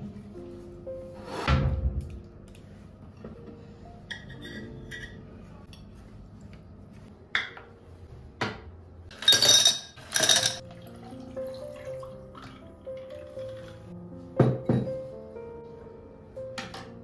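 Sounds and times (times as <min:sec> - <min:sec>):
ice cubes clattering into glass: 0:09.1 - 0:10.6.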